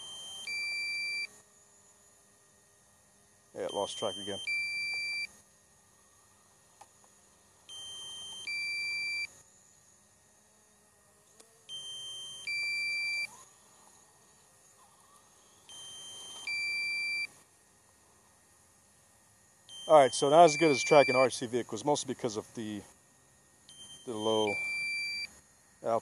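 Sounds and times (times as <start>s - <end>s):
electronic warning alarm beeping: 0.0s - 1.4s, 3.6s - 5.4s, 7.7s - 9.3s, 11.7s - 13.3s, 15.6s - 17.4s, 19.7s - 21.5s, 23.6s - 25.4s.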